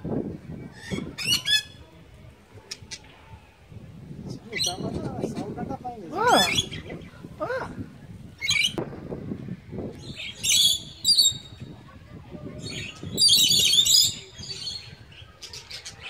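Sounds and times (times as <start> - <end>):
parrots chirping and chattering: 0.8 - 1.8, 6.3 - 7.1, 10.0 - 11.6, 12.6 - 16.0.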